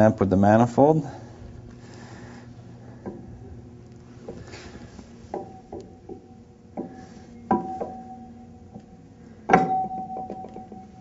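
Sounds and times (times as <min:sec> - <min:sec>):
metal-on-metal knocks with ringing: 0:07.5 - 0:08.4, 0:09.5 - 0:11.0.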